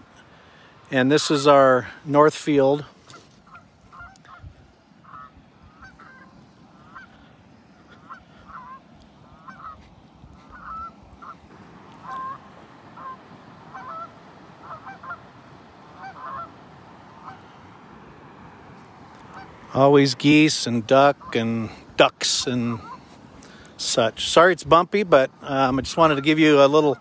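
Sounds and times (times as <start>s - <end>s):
geese honking: 1.0s - 2.0s, 3.0s - 23.9s, 25.3s - 27.0s.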